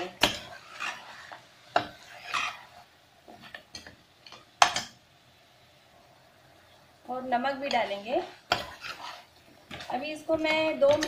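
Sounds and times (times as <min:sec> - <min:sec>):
metal spatula scraping a pot: 0:00.0 - 0:03.9, 0:07.5 - 0:10.1.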